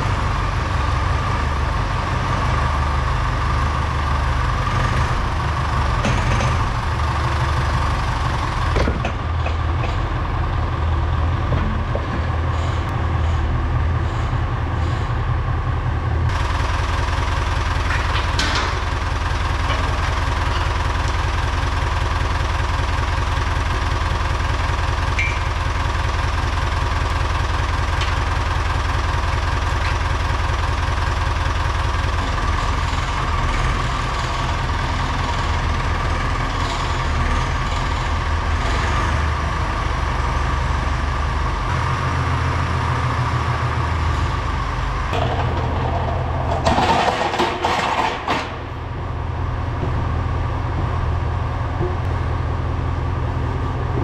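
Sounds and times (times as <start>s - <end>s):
tractor engine idling: 0.0s - 54.0s
knocking and rattling: 45.1s - 48.7s.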